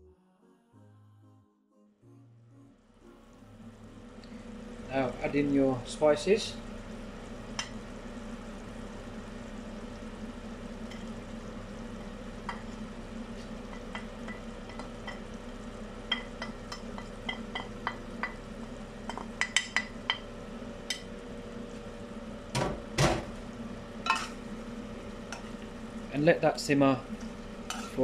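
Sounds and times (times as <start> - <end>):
onions sizzling in oil: 3.6 - 28.0
metal spoon tapping and scraping: 27.7 - 28.0.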